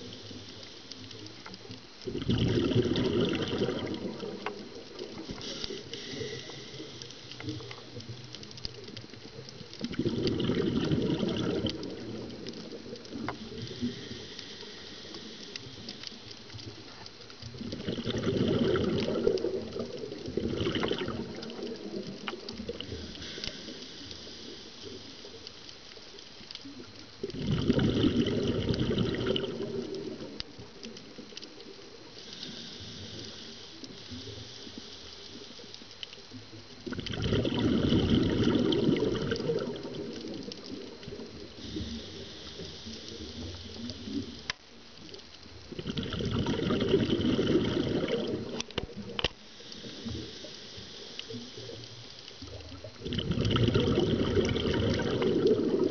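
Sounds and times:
faint clicks: 0.0 - 55.9
diver's exhaled bubbles rushing: 2.0 - 6.6, 9.6 - 13.9, 17.4 - 23.2, 27.2 - 30.7, 36.8 - 44.4, 45.6 - 49.2, 52.4 - 55.9
breathing noise: 5.3 - 7.4, 13.6 - 16.1, 22.8 - 25.1.

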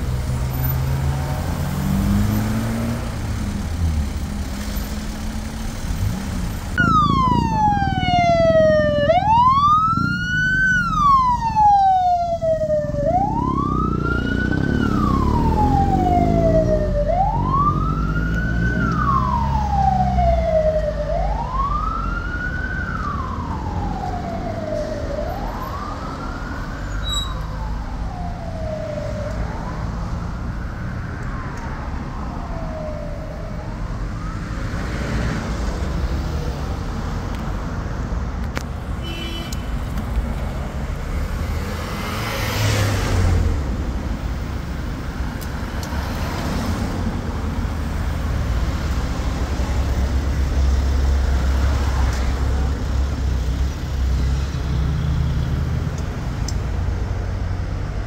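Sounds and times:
traffic rumble: 0.0 - 58.0
emergency siren wailing: 6.8 - 35.3.

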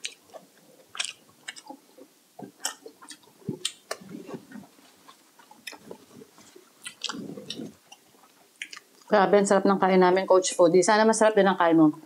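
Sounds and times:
wet mouth clicks and smacks: 0.0 - 1.8, 2.4 - 9.1
close chewing and mouth sounds: 0.0 - 9.2.

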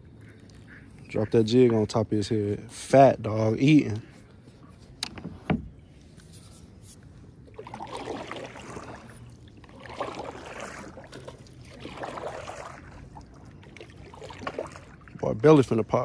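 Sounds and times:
paddle splashing in water: 7.4 - 15.7.

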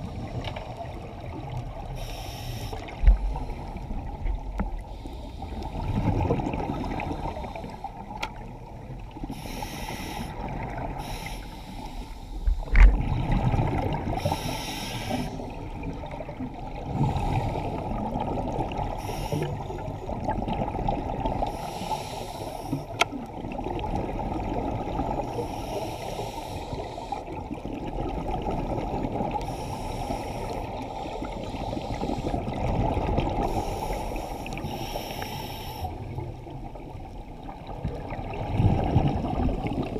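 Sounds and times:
underwater bubbling rush: 0.0 - 39.9
regulator breathing hiss: 1.9 - 3.8, 4.8 - 5.7, 9.3 - 12.7, 14.2 - 15.5, 18.9 - 19.6, 21.5 - 23.0, 25.3 - 27.2, 29.4 - 32.4, 33.4 - 36.0.

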